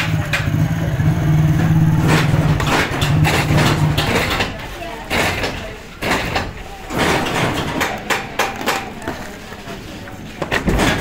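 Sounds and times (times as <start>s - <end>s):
sharp knocks and clacks: 1.5s - 9.3s.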